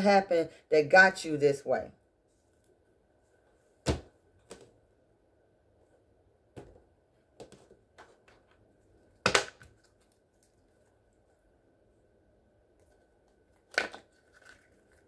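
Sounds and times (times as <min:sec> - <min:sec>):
cards slapping on table: 0:09.2 - 0:09.8.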